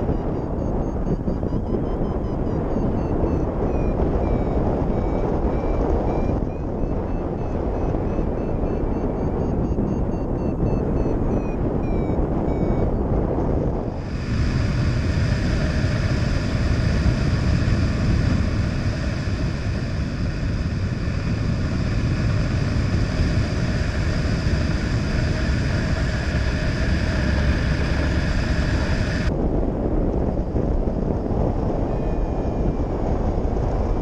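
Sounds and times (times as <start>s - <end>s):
faint whistling tones: 0.0s - 13.2s
variometer beep: 0.0s - 29.3s, 31.9s - 33.0s
wind rushing over microphone: 0.0s - 34.0s.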